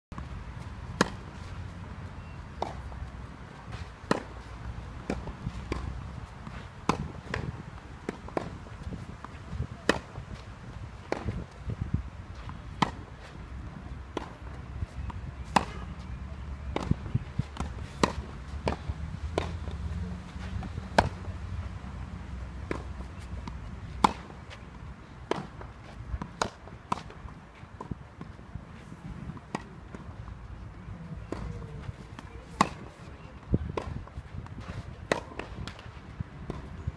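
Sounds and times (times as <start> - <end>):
racket hitting tennis ball: 0.9 - 1.5, 3.6 - 10.4, 11.0 - 11.5, 12.4 - 13.3, 15.4 - 15.9, 16.7 - 19.8, 20.4 - 21.2, 22.6 - 27.2, 31.2 - 33.0, 33.7 - 36.8
tennis ball bouncing: 0.9 - 1.6, 2.2 - 3.0, 3.6 - 10.4, 11.0 - 11.5, 12.3 - 13.2, 14.1 - 15.9, 16.7 - 21.4, 22.2 - 28.3, 29.4 - 30.2, 31.1 - 36.8.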